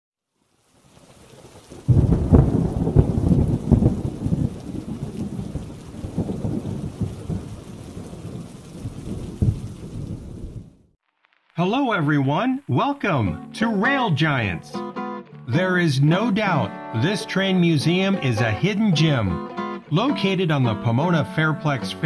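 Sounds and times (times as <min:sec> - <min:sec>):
rain hiss: 0:00.3 - 0:13.3
thunder crack and rumble: 0:01.6 - 0:10.9.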